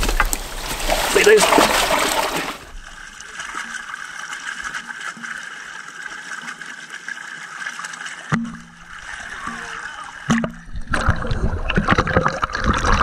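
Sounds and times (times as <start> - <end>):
water rushing and gurgling: 0.0 - 13.0.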